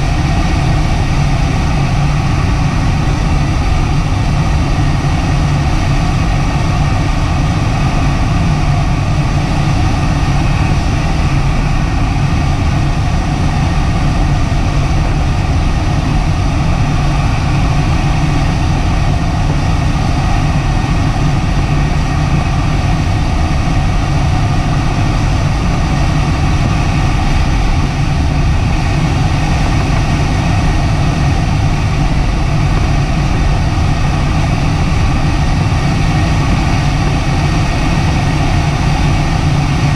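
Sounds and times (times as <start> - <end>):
airflow rushing over canopy: 0.0 - 39.9.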